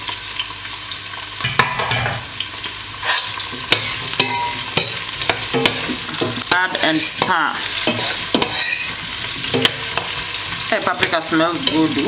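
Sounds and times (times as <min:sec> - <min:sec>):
vegetables sizzling in hot oil: 0:00.0 - 0:12.0
metal spoon scraping a pot: 0:03.0 - 0:10.2.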